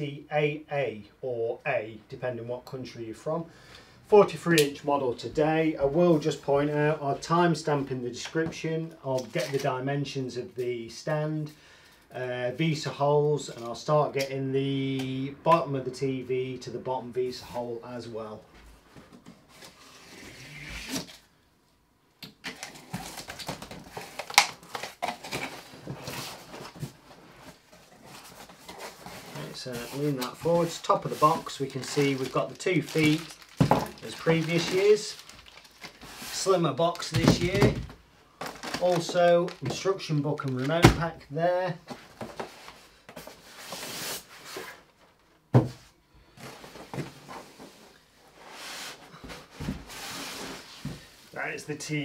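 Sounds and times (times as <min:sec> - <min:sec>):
cardboard scraping and rustling: 0:22.6 - 0:37.8.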